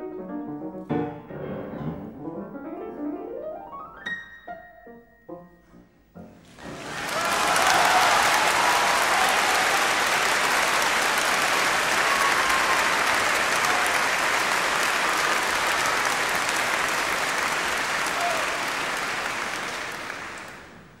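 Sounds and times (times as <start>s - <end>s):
many hands clapping: 6.5s - 21.0s.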